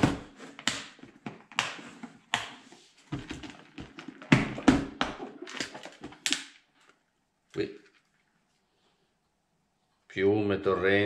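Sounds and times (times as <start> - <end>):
plastic boxes clicking and knocking: 0.0 - 6.6.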